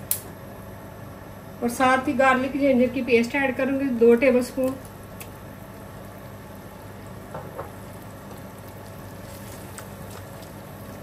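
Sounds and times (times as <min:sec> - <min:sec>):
onions sizzling in a pot: 0:04.0 - 0:11.0.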